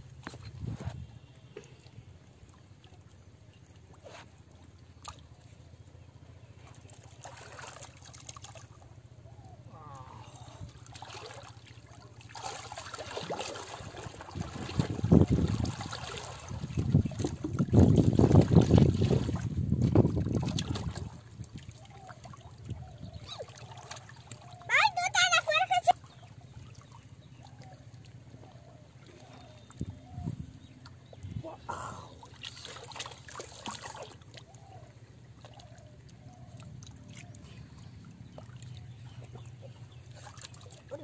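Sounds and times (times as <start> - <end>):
water sloshing and splashing: 0.0 - 41.0.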